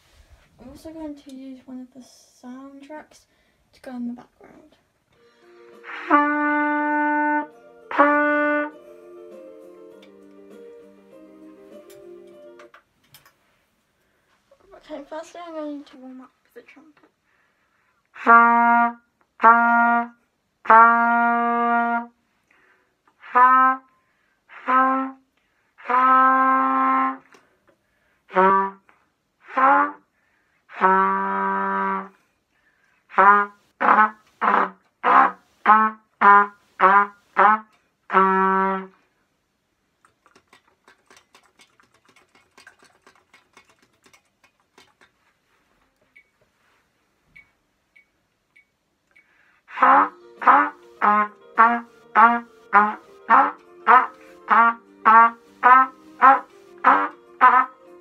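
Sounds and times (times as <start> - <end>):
trumpet notes: 5.2 - 12.7, 18.2 - 22.2, 23.2 - 23.9, 24.5 - 27.4, 28.3 - 30.1, 30.7 - 32.2, 33.1 - 39.0, 49.7 - 58.0.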